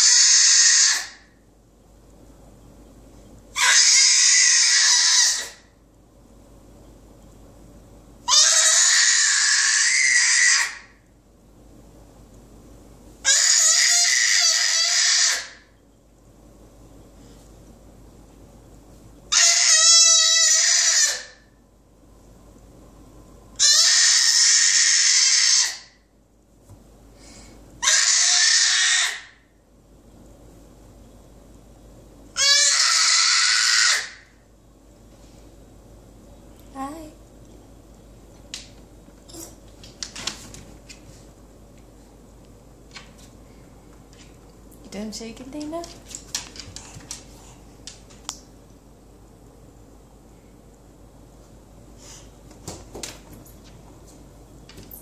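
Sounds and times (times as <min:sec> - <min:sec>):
baby shrieking: 0:00.0 - 0:01.3, 0:03.6 - 0:05.7, 0:08.3 - 0:10.9, 0:13.3 - 0:15.7, 0:19.3 - 0:21.5, 0:23.6 - 0:26.0, 0:27.8 - 0:29.4, 0:32.4 - 0:34.3.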